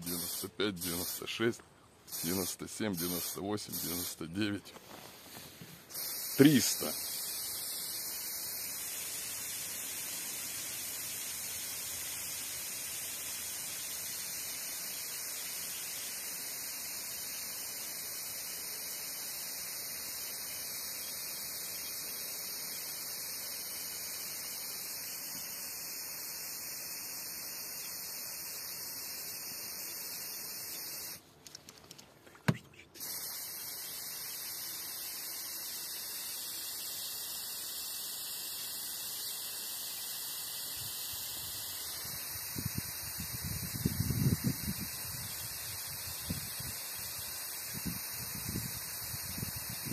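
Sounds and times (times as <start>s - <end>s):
aerosol spray hissing: 0.0s - 1.5s, 2.1s - 31.3s, 32.5s - 49.9s.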